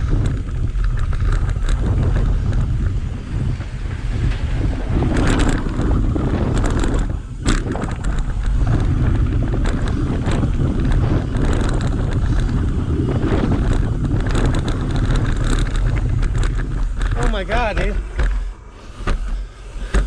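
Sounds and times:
bike clattering over bumps: 0:00.0 - 0:20.0
wind buffeting microphone: 0:00.0 - 0:20.0.

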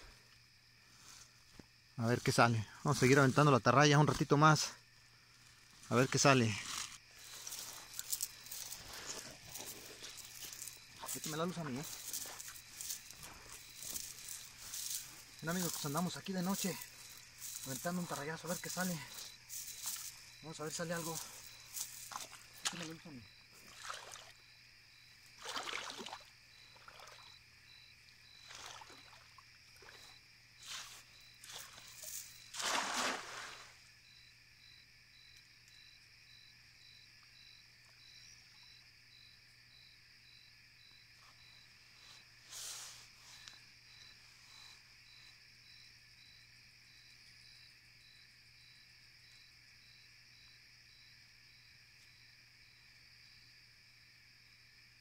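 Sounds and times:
insects calling at night: 0:00.0 - 0:55.0
cast net splashing in water: 0:21.7 - 0:24.4, 0:25.4 - 0:27.4, 0:28.4 - 0:30.1, 0:30.7 - 0:33.8.

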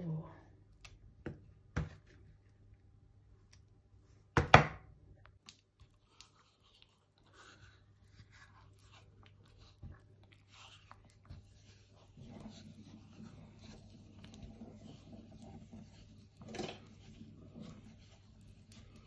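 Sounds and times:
wooden spoon scraping a pot: 0:06.0 - 0:19.0.

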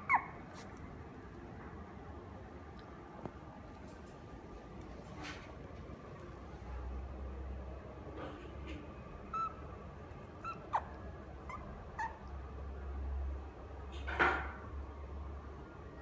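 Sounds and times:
puppy whimpering: 0:00.0 - 0:00.8, 0:09.3 - 0:09.6, 0:10.4 - 0:12.4.

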